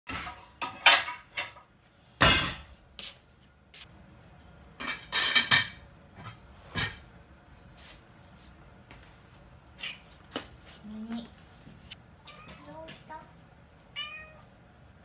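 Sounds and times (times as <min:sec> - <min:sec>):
kitchen knocks and clattering scrapes: 0:00.1 - 0:02.8, 0:04.6 - 0:07.1.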